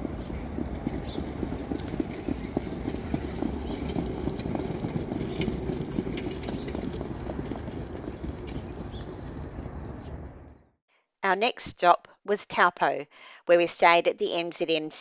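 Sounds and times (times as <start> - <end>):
trotting hoofbeats on dirt: 0.0 - 10.0.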